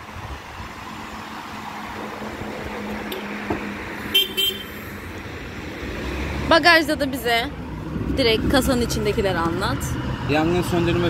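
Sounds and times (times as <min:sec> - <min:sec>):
engine hum: 0:00.0 - 0:11.0
traffic noise: 0:00.0 - 0:11.0
car horn toot: 0:04.1 - 0:04.8.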